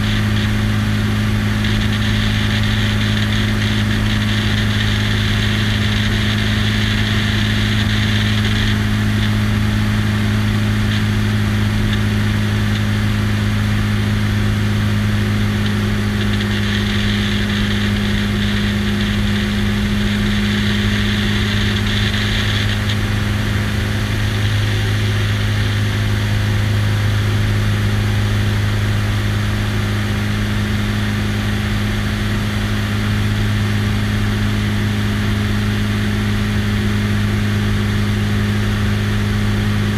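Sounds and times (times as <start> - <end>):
plane engine and propeller drone: 0.0 - 39.9
air rushing over camera: 15.0 - 27.0.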